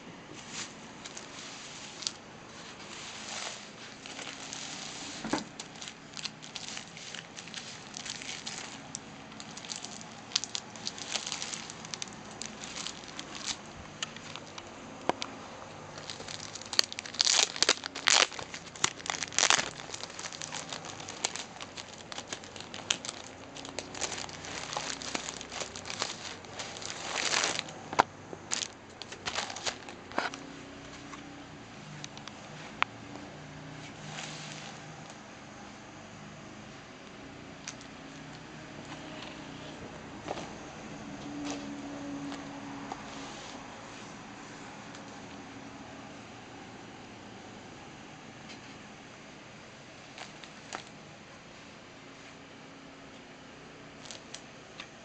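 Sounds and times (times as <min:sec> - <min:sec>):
bubble wrap crinkling: 0:00.4 - 0:31.2, 0:33.8 - 0:35.2, 0:50.0 - 0:51.0, 0:54.0 - 0:54.5.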